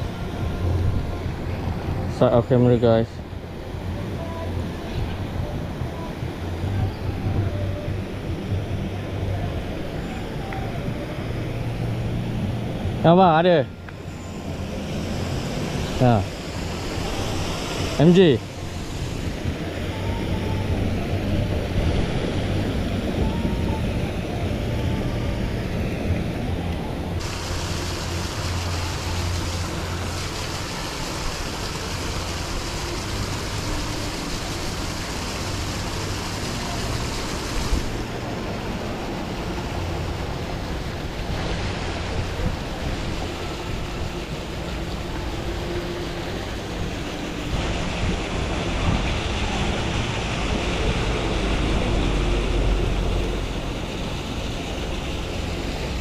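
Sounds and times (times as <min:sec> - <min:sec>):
low steady hum: 0:00.0 - 0:56.0
pond aerators splashing water: 0:13.7 - 0:25.6, 0:26.8 - 0:56.0.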